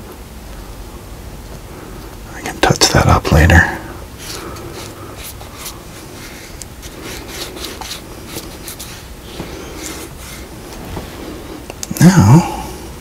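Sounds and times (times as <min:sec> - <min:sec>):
hands rubbing paper on clay: 0:04.2 - 0:11.7.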